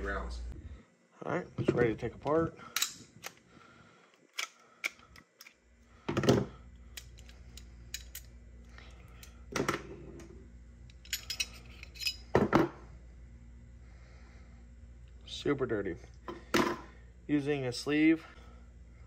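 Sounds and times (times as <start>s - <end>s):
pistol parts clicking and clattering: 2.7s - 3.4s, 4.1s - 5.6s, 6.9s - 8.3s, 10.9s - 12.2s.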